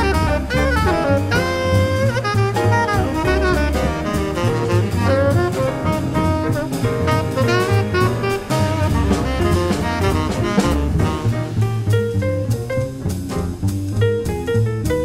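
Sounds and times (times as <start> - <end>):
saxophone melody: 0.0 - 11.6
drum kit ride cymbal: 0.0 - 15.0
piano: 0.0 - 15.0
walking double bass: 0.0 - 15.0.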